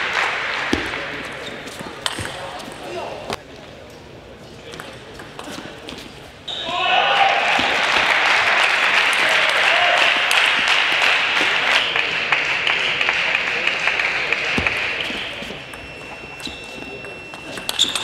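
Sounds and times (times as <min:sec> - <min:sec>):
audience applauding: 0:07.5 - 0:15.3.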